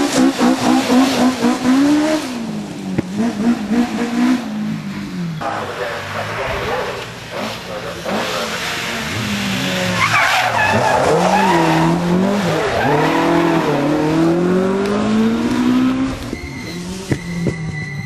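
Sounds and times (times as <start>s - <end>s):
rally car engine accelerating: 0.0s - 18.0s
tyres squealing: 7.3s - 14.1s.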